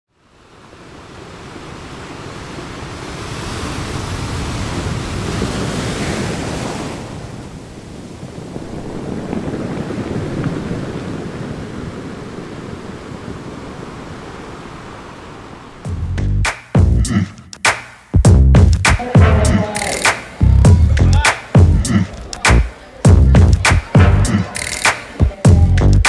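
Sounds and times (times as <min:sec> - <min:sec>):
rushing surf or wind: 0:00.1 - 0:15.9.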